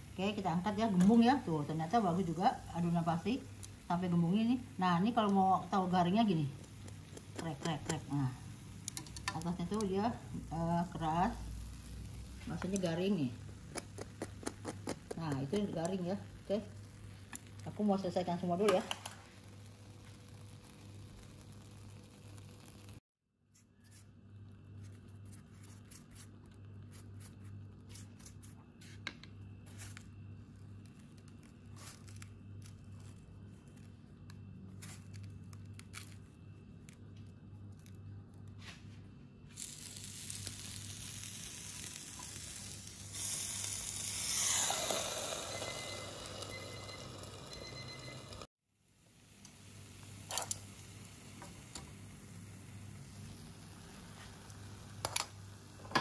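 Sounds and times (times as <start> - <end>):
pastry sizzling in waffle iron: 0.0 - 23.1, 39.4 - 56.0
pastry clicks and rustles: 13.4 - 16.0.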